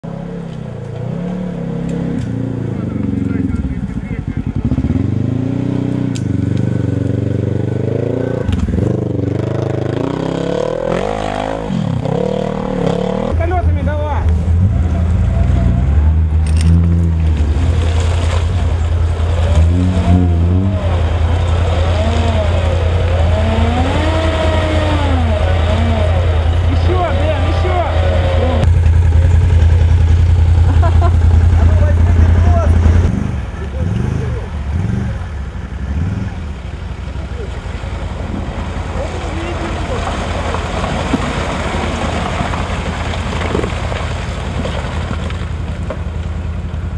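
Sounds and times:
suv engine revving: 0.0s - 46.9s
small knocks and crackles: 40.5s - 46.3s.

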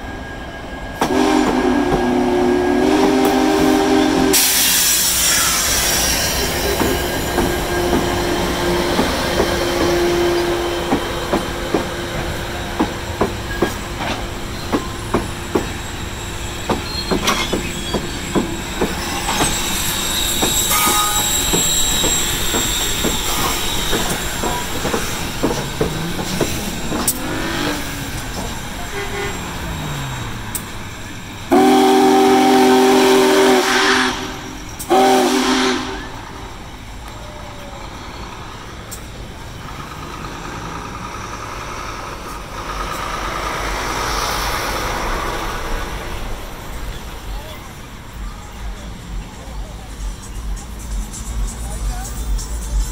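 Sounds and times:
steam train rumbling past: 0.0s - 52.9s
chime whistle blasts: 18.9s - 24.2s.

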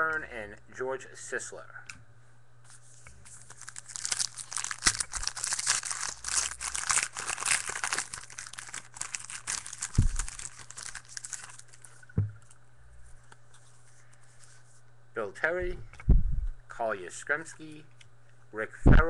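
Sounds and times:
card pack wrapper crinkling: 3.2s - 12.6s
dull thump: 12.2s - 12.4s.

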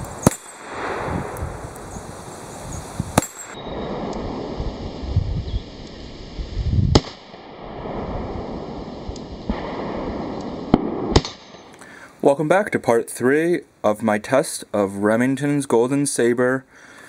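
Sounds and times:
revolver gunshots: 0.2s - 1.4s, 3.2s - 4.6s, 6.9s - 11.7s.

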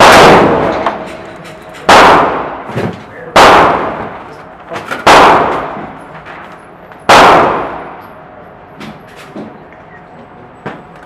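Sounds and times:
rifle shots echoing indoors: 0.0s - 1.2s, 1.8s - 6.1s, 7.0s - 8.2s.

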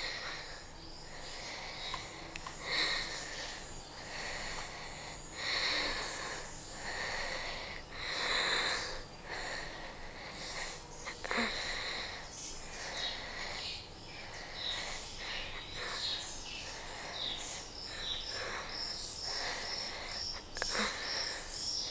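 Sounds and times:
woman breathing heavily: 0.0s - 21.9s.

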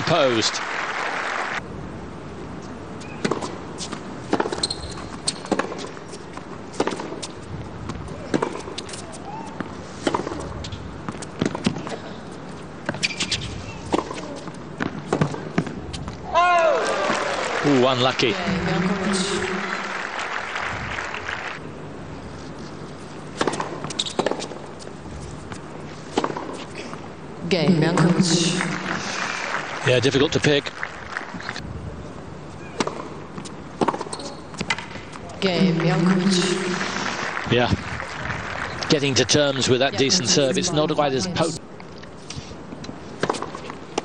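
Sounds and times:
crowd applause: 0.0s - 1.6s, 16.6s - 21.6s, 28.4s - 31.6s, 36.0s - 40.5s
shoe squeak: 3.0s - 3.9s, 4.5s - 6.2s, 12.9s - 14.5s, 23.8s - 24.3s, 34.1s - 34.6s
racket striking tennis ball: 3.1s - 6.0s, 6.7s - 7.4s, 12.8s - 15.8s, 23.3s - 24.6s, 26.1s - 26.7s, 32.7s - 36.2s, 43.2s - 44.0s.

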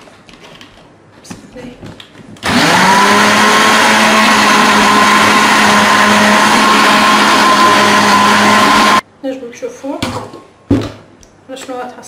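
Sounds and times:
blender motor whine: 2.4s - 9.0s.

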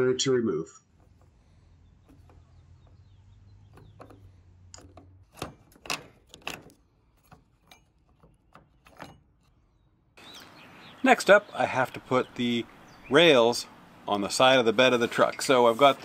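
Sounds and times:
metal and plastic parts clicking: 0.9s - 10.0s.

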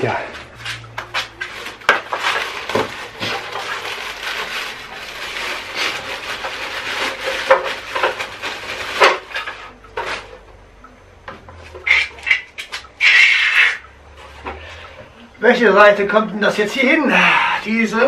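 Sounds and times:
plastic bag crinkling: 1.3s - 9.4s.

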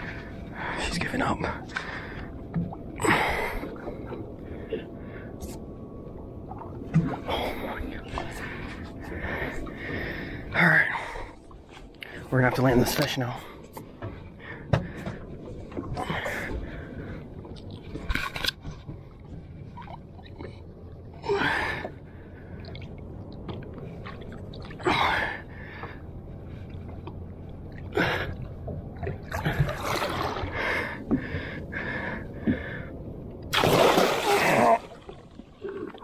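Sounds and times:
low wash of water: 19.0s - 36.0s
fish thrashing and splashing: 33.5s - 36.0s.

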